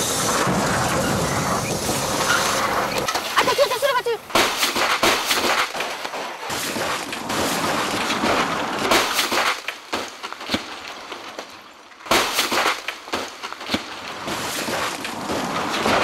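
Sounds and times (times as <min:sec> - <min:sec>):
gravel and debris spraying: 0:00.0 - 0:11.3, 0:12.1 - 0:16.0
sharp knocks and breaking: 0:04.3 - 0:11.4, 0:12.1 - 0:16.0.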